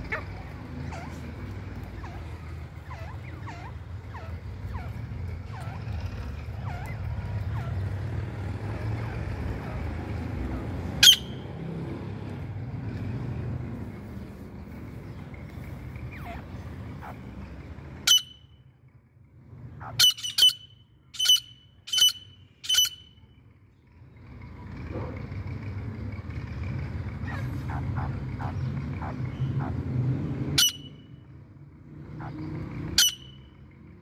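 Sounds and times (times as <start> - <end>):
francolin whistled calls: 11.0 - 11.4, 18.1 - 18.5, 20.0 - 23.3, 30.6 - 31.2, 33.0 - 33.6.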